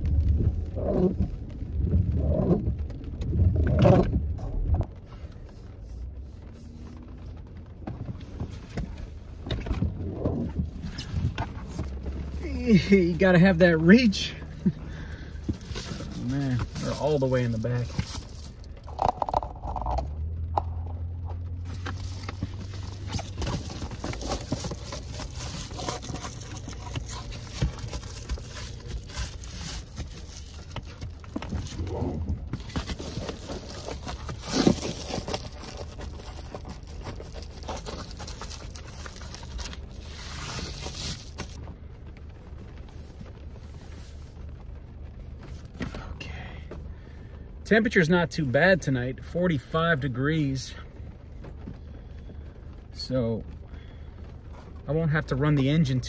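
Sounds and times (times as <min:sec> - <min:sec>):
car engine idling: 0:00.0 - 0:56.0
foil window covers crinkling: 0:10.4 - 0:19.8, 0:21.4 - 0:41.6.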